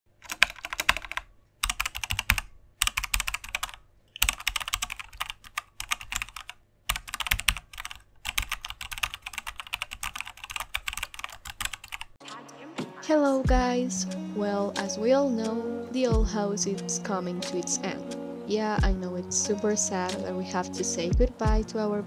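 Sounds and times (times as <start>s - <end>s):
fast keyboard typing: 0.2s - 12.2s.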